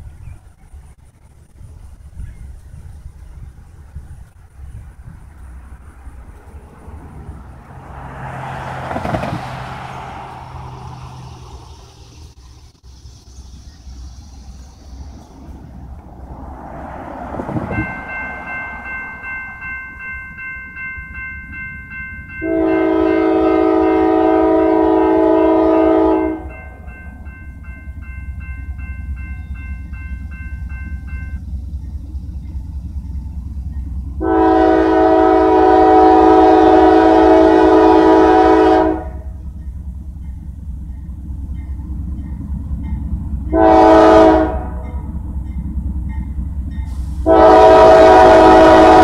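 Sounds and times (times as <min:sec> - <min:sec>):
crossing signal bell ringing: 0:17.5 - 0:34.7, 0:39.4 - 0:44.1, 0:44.8 - 0:49.0
locomotive air horn blasts: 0:22.3 - 0:26.9, 0:34.2 - 0:39.4, 0:43.5 - 0:45.0, 0:46.9 - 0:49.0.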